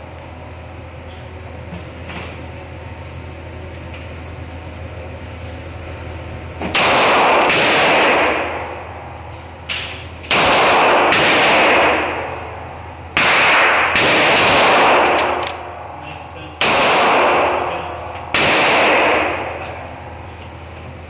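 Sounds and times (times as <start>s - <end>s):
pistol shots ringing: 6.7s - 8.9s, 10.2s - 15.9s, 16.6s - 19.9s.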